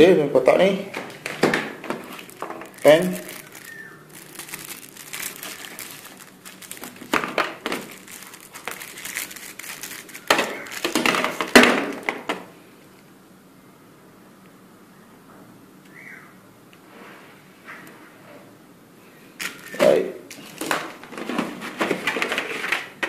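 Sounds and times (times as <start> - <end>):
plastic wrapper crinkling: 1.1 - 12.4, 19.4 - 23.0.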